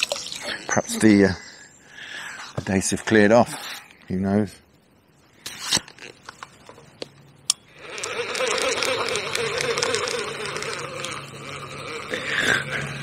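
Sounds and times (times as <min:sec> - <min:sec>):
fishing reel whirring: 0:07.7 - 0:13.0
fishing reel click: 0:07.8 - 0:11.6.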